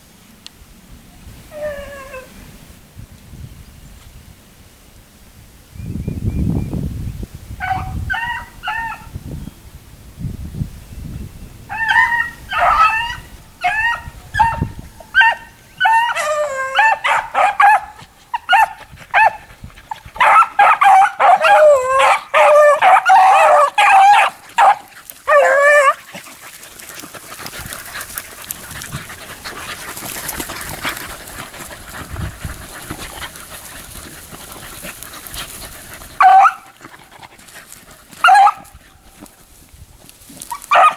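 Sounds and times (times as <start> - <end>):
dogs baying: 11.7 - 39.3, 40.4 - 40.9.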